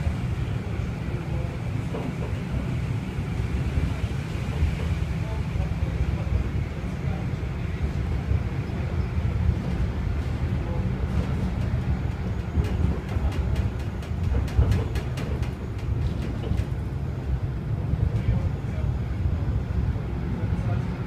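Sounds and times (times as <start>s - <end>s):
tram rumbling on rails: 0.0s - 21.0s
sharp clicks and rattles: 11.1s - 16.9s.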